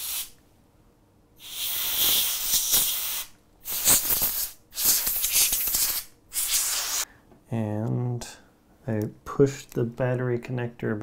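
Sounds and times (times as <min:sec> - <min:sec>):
compressed air spray hissing: 0:00.0 - 0:00.4, 0:01.4 - 0:07.1.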